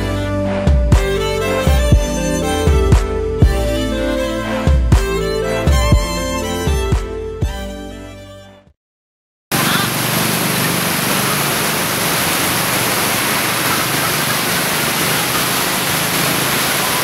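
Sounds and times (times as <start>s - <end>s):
heavy road traffic roar: 9.5s - 17.0s.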